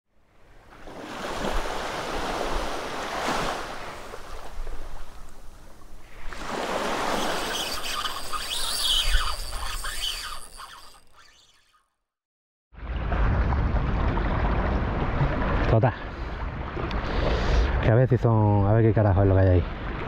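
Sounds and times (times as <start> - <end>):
waves washing onto shore: 0.7 - 8.5
high sliding tones: 6.9 - 11.9.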